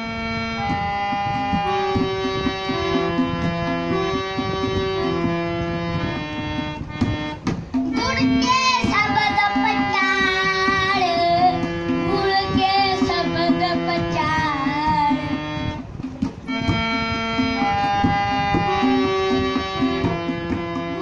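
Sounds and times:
harmonium: 0.0 - 21.0
tabla drumming: 0.6 - 21.0
boy singing: 7.9 - 15.6.

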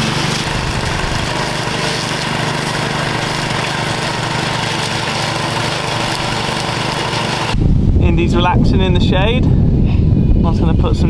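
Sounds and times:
mower engine cutting weeds: 0.0 - 7.6.

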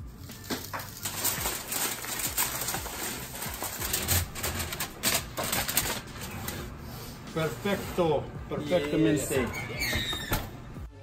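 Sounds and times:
aluminium foil crinkling: 0.0 - 6.5.

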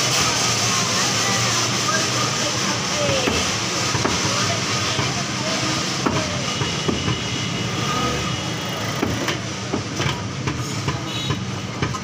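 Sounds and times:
machinery rumble: 0.0 - 12.0.

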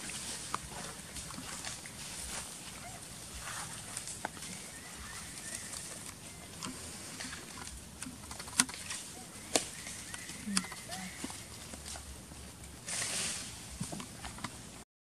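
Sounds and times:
faint short chirping calls: 2.8 - 6.7, 9.0 - 11.6
sharp clicks: 6.0 - 11.4.

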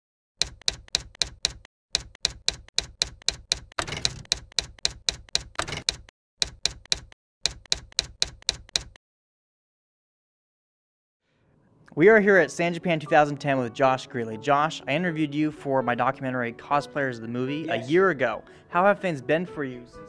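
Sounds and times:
typewriter keys clattering: 0.4 - 9.0.

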